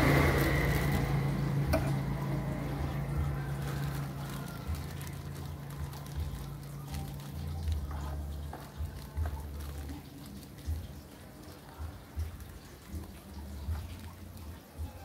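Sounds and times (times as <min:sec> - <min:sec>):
plastic bag crinkling: 0:00.0 - 0:15.0.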